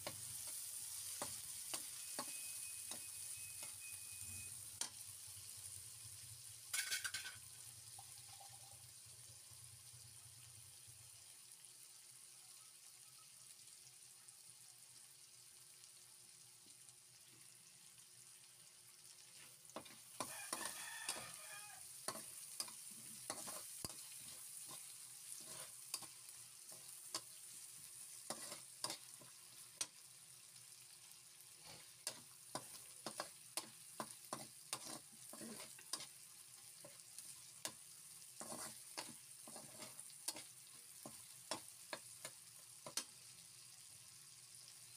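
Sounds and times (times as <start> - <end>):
metal spatula scraping wok: 0.0 - 5.0, 19.4 - 29.9, 31.6 - 36.2, 36.8 - 43.0
vegetables sizzling in a wok: 0.0 - 44.9.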